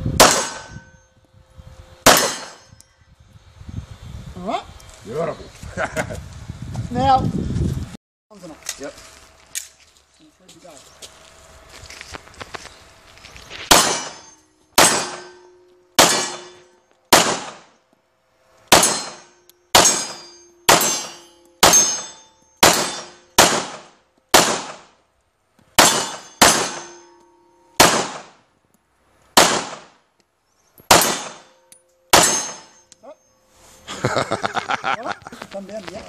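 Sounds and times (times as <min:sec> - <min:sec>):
pistol shots with echo: 0:00.2 - 0:00.7, 0:02.1 - 0:02.6, 0:13.7 - 0:14.2, 0:14.8 - 0:15.4, 0:16.0 - 0:17.7, 0:18.7 - 0:24.9, 0:25.8 - 0:27.0, 0:27.8 - 0:28.4, 0:29.4 - 0:29.9, 0:30.9 - 0:31.5, 0:32.1 - 0:32.7.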